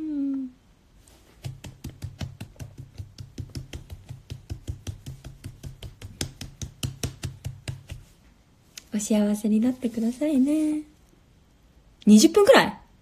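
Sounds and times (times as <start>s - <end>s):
woman saying ooh: 0.0s - 0.6s
hand clapping: 1.4s - 8.1s.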